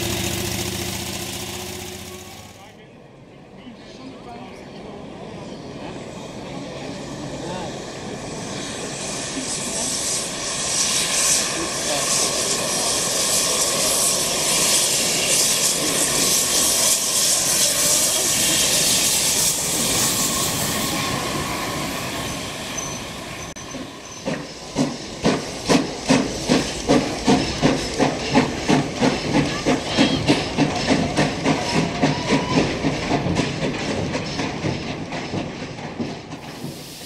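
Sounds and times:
steam hissing: 0.0s - 2.7s, 6.9s - 37.0s
steam locomotive exhaust chuffs: 0.0s - 2.8s, 7.7s - 37.0s.

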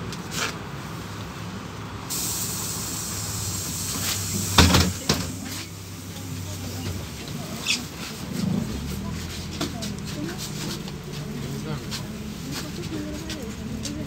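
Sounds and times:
bus engine idling: 0.0s - 14.0s
pneumatic doors shutting: 2.1s - 5.7s
compressed air hissing: 2.1s - 6.6s.

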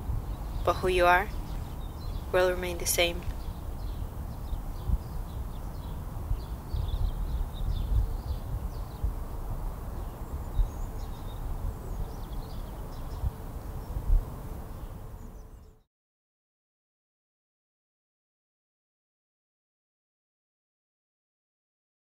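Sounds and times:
small birds chirping: 0.1s - 15.8s.

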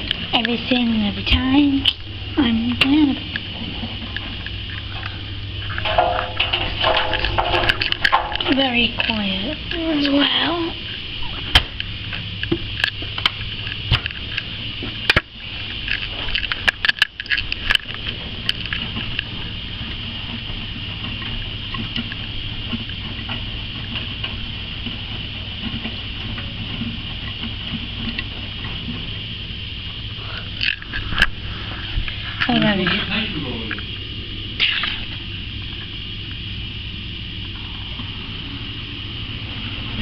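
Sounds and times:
washing machine motor hum: 0.0s - 40.0s
sharp clicks and knocks: 2.8s - 10.2s.

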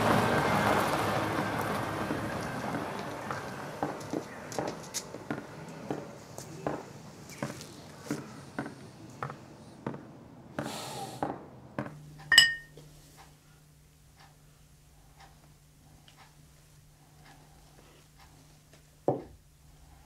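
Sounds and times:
drinking glasses clinking: 12.3s - 12.8s
soft regular knocking: 18.7s - 19.4s.

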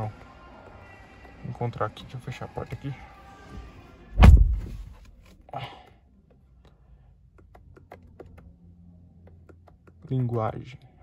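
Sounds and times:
truck door shutting thud: 4.2s - 5.0s.

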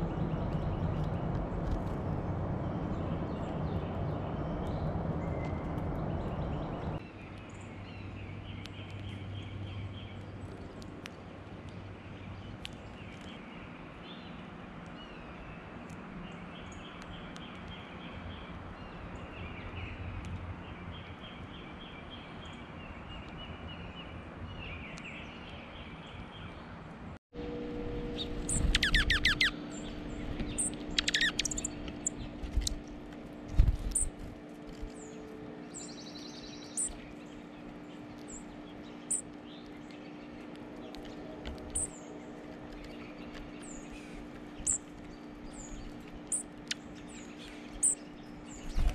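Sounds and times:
trilled birdsong: 0.0s - 48.9s
bird chip calls and twitters: 28.1s - 48.9s.

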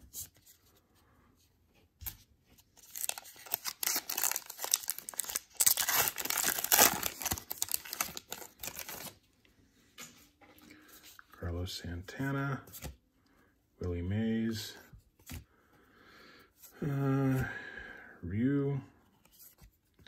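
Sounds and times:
wrapper being torn and crinkled: 2.8s - 9.2s.

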